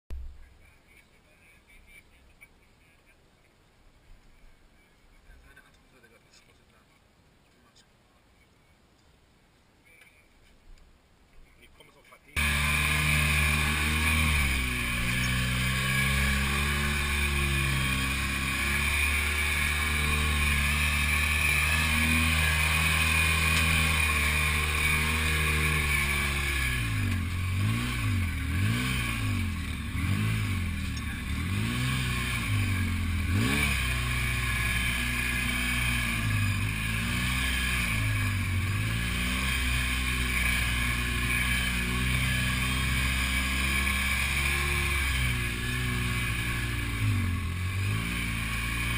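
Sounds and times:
buggy engine revving: 12.4s - 48.9s.

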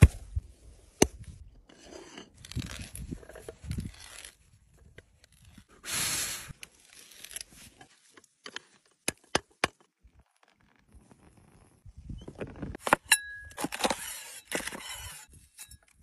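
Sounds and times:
hand auger scraping through wood: 1.6s - 4.4s, 5.2s - 7.8s, 13.6s - 15.8s.

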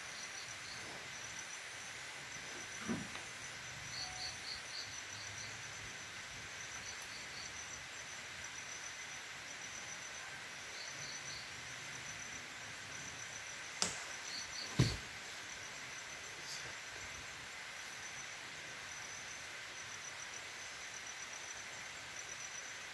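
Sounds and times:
insects chirping: 0.0s - 22.9s
sharp crack: 13.8s - 15.0s.

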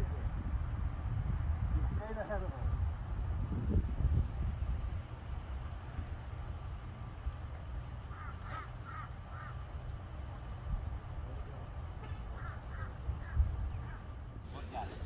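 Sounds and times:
wind rumble on microphone: 0.0s - 11.5s, 12.3s - 15.0s
bird calling: 8.1s - 9.7s, 12.3s - 14.1s.

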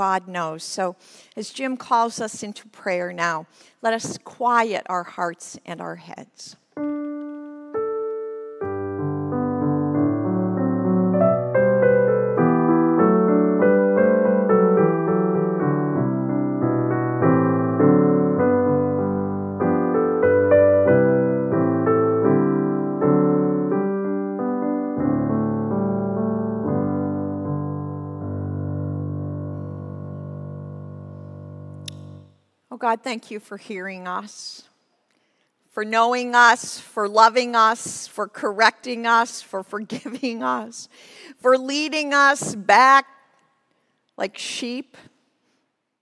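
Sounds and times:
digital piano hymn-like chords: 6.8s - 32.3s.

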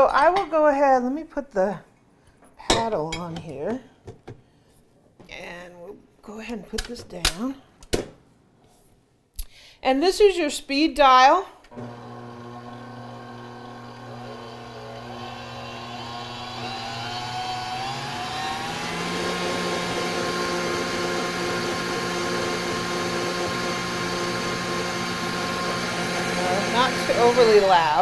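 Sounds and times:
stand mixer motor humming: 11.7s - 28.0s.

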